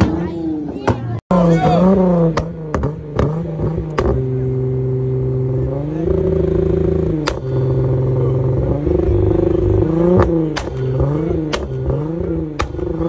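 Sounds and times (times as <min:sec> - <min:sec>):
car engine revving: 0:00.0 - 0:13.0
sharp exhaust pops: 0:02.0 - 0:04.4, 0:06.1 - 0:13.0.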